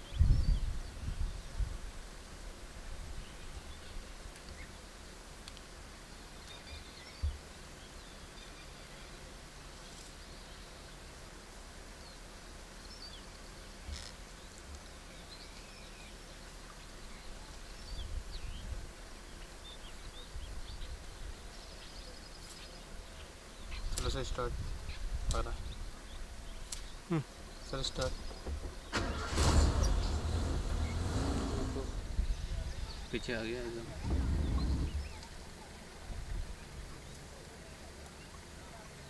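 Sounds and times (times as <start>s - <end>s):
steady low rumble: 29.4s - 33.0s, 33.8s - 35.2s
dull thump: 34.0s - 35.0s.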